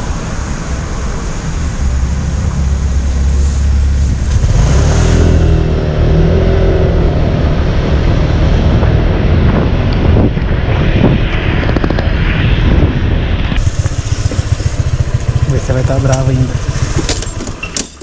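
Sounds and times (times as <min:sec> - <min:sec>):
wind rushing on microphone: 0:00.0 - 0:17.3
motor scooter engine running: 0:13.6 - 0:18.0.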